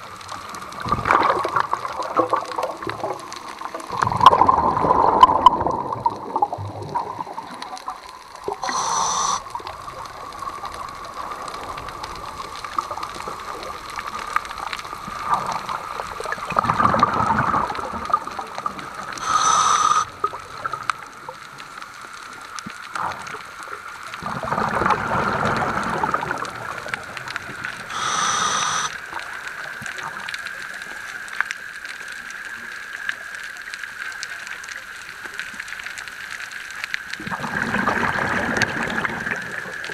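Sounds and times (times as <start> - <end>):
underwater water movement: 0.0 - 39.9.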